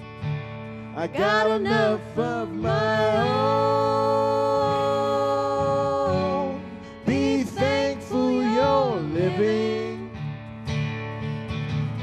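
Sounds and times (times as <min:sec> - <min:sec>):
strummed acoustic guitar: 0:00.0 - 0:12.0
two voices singing: 0:01.0 - 0:10.3.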